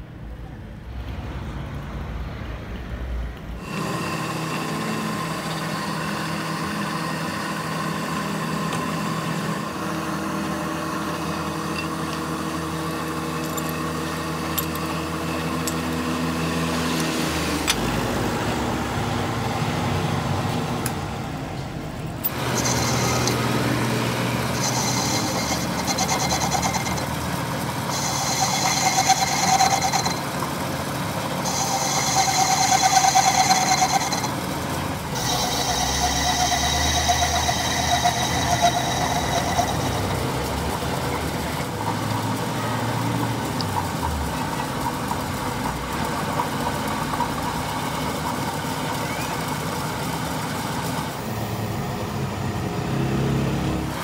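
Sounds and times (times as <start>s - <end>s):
drill boring into metal: 3.6s - 16.2s, 22.2s - 48.0s
metal lathe humming: 3.6s - 52.9s
high-pitched cutting whine: 22.0s - 54.0s.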